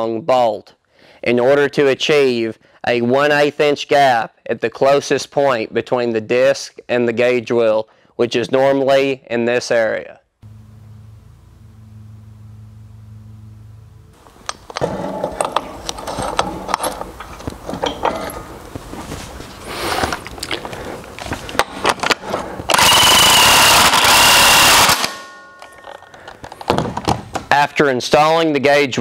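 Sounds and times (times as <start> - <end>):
power tool whining: 10.4 - 14.8, 22.7 - 25.1
metal parts clinking and knocking: 14.6 - 18.6.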